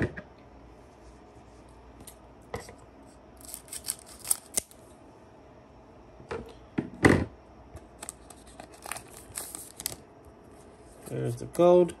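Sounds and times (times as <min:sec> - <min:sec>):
foil pack crinkling: 0:03.4 - 0:04.8, 0:08.0 - 0:10.0
scissors snipping foil: 0:03.4 - 0:04.8.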